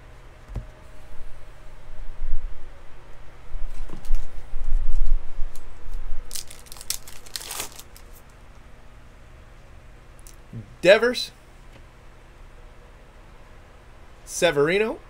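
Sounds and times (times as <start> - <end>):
foil wrapper crinkling and tearing: 6.3 - 8.3.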